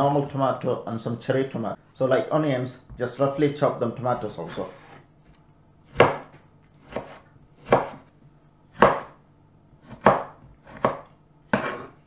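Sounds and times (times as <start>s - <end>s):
knife slicing tomatoes: 5.9s - 8.1s, 8.8s - 9.2s, 9.8s - 12.0s.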